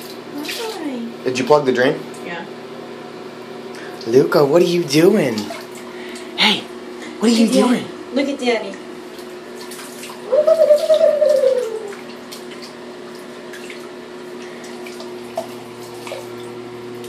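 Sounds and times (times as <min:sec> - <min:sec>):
steady hum: 0:00.0 - 0:17.0
water pouring and splashing: 0:05.1 - 0:06.3, 0:09.0 - 0:17.0.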